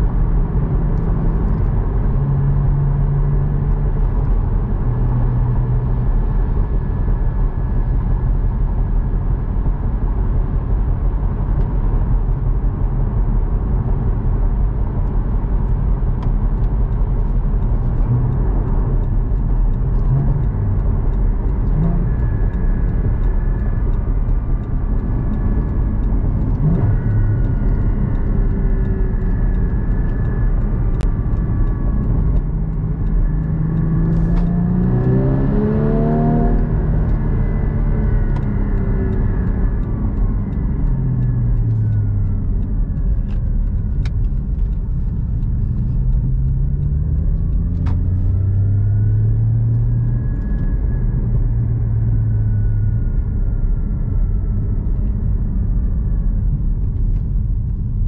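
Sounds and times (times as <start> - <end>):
tyre and road noise: 0.0 - 58.0
car engine revving: 16.7 - 57.1.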